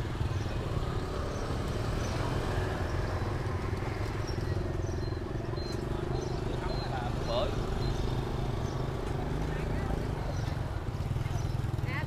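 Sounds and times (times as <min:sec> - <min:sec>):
motorbike and traffic engine rumble: 0:00.0 - 0:12.0
faint crowd noise: 0:00.2 - 0:12.0.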